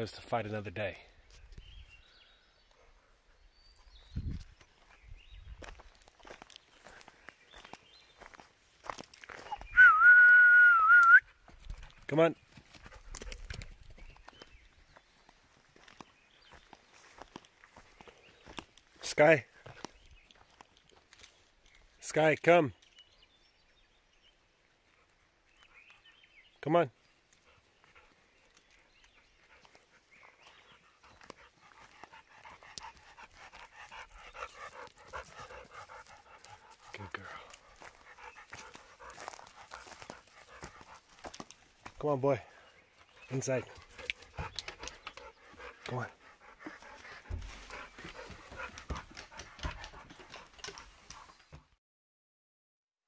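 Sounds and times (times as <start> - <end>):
dog panting: 27.4 - 41.6, 43.0 - 51.6
dog claws clicking on wood: 44.0 - 45.9, 48.0 - 51.3.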